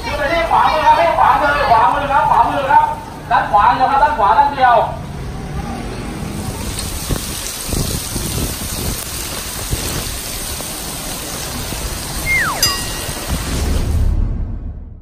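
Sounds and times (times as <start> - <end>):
steady rain: 0.0 - 14.4
whistle-like descending tone: 12.2 - 13.2.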